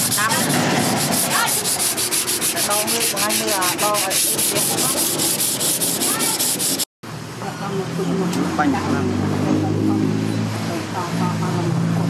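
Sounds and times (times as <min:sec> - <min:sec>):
sandpaper rasping on steel blade: 0:00.0 - 0:06.9.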